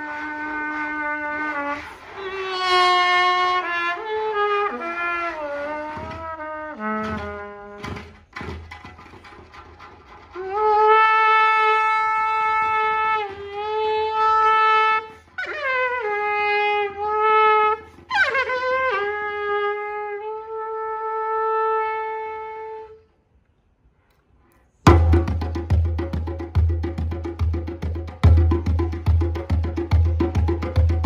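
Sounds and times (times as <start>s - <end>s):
trumpet playing long notes: 0.0s - 8.0s, 10.4s - 23.0s
djembe hand strikes: 24.9s - 31.0s.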